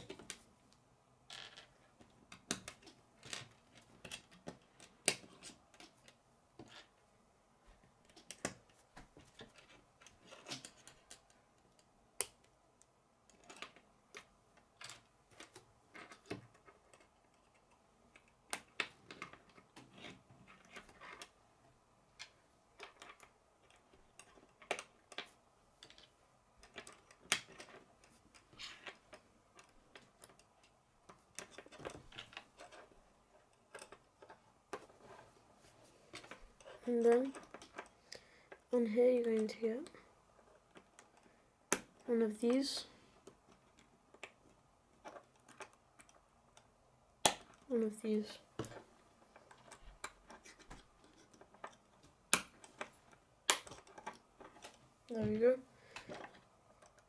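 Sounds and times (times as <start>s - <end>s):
plastic pieces clicking together: 13.3s - 21.3s, 22.2s - 35.2s, 43.2s - 47.7s, 48.7s - 55.3s.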